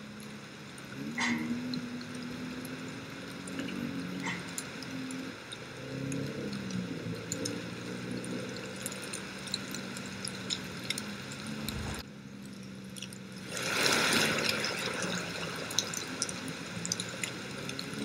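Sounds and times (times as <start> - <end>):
light ticks: 0.0 - 13.4, 15.0 - 18.0
faint wavering low hum: 0.0 - 18.0
steady rushing noise: 6.8 - 12.1.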